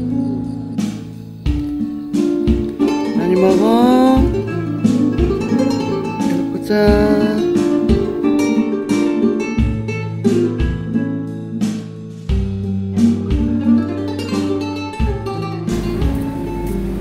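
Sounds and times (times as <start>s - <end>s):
acoustic guitar piece: 0.0s - 17.0s.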